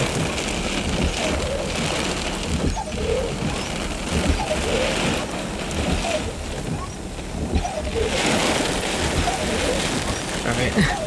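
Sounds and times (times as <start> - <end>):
rain beating on a car: 0.0 - 11.0
wind buffeting the car: 0.0 - 11.0.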